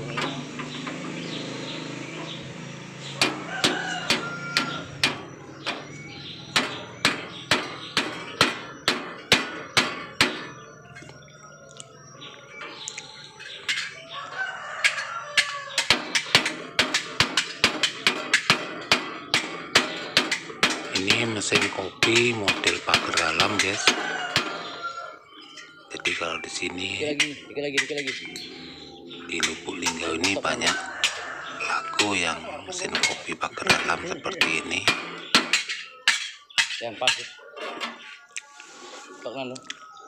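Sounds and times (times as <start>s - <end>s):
hammer knocking on metal: 0.0s - 10.6s, 14.8s - 24.9s, 29.4s - 37.4s.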